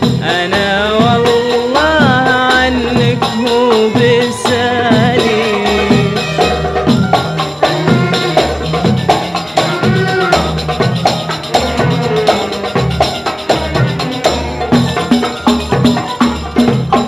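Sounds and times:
percussion steady beat: 0.0s - 17.0s
violin section melody: 5.3s - 16.6s.

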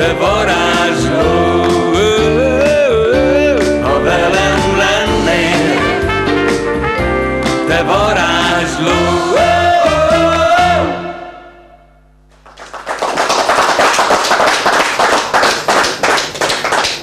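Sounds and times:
man singing: 0.0s - 6.2s, 7.6s - 11.1s
band with accordion: 0.3s - 11.4s
audience applause: 12.3s - 17.0s.

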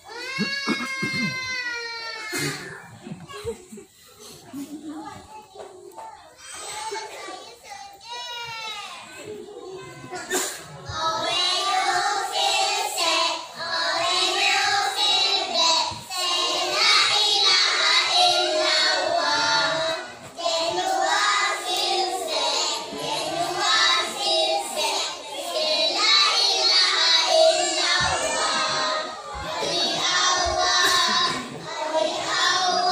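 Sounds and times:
children singing together: 9.9s - 32.9s.

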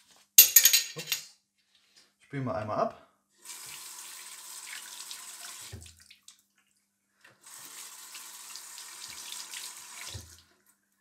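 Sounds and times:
tap water splashing into basin: 4.6s - 7.4s, 8.1s - 10.4s.

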